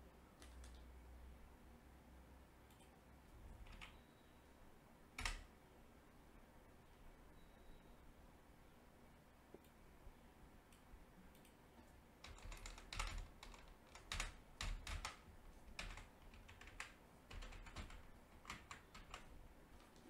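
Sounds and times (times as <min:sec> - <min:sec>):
typing on computer keyboard: 0:00.4 - 0:00.9, 0:03.6 - 0:04.0, 0:05.2 - 0:05.5, 0:12.2 - 0:19.3.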